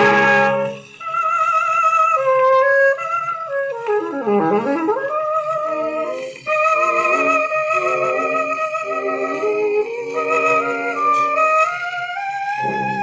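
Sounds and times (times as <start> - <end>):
jazz band on old record: 0.0 - 0.8.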